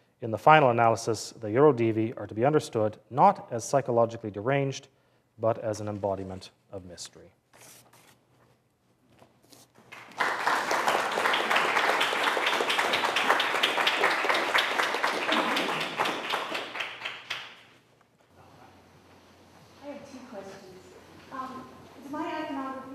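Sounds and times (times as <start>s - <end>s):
audience applauding: 9.9s - 17.8s.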